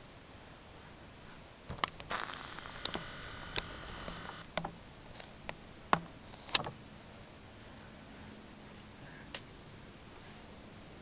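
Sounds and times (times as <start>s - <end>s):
lens zoom motor whirr: 2.0s - 4.5s.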